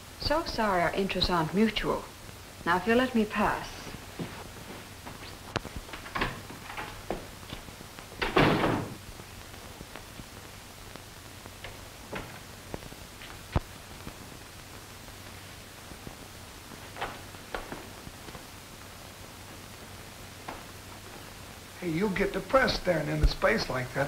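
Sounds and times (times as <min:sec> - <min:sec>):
wooden door banging shut: 0:08.2 - 0:09.0.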